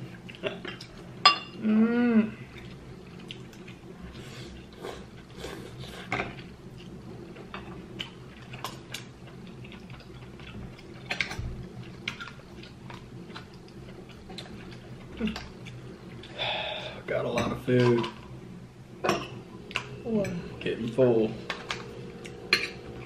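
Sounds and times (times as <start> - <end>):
person chewing: 2.4 - 6.1, 7.9 - 16.6.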